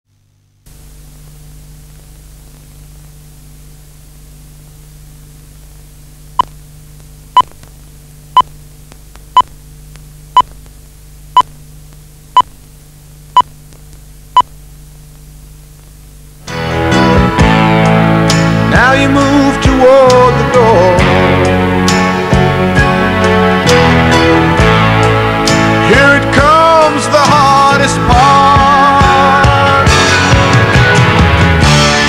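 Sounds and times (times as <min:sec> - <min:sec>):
low hum: 0:00.1 - 0:19.8
steady hiss: 0:00.6 - 0:16.6.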